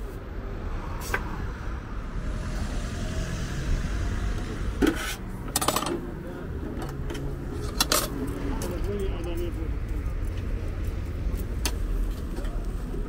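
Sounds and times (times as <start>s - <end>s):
low street rumble: 0.0s - 13.0s
vehicle driving past: 0.3s - 9.0s.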